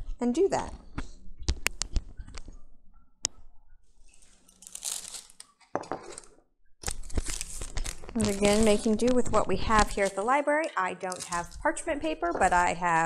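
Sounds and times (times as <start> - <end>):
plastic bag crinkling: 4.1 - 6.2, 6.8 - 13.0.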